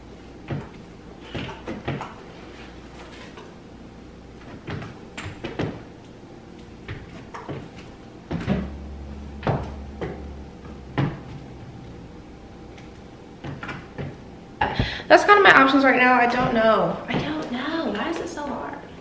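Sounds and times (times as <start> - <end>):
low hum: 5.9 - 17.0.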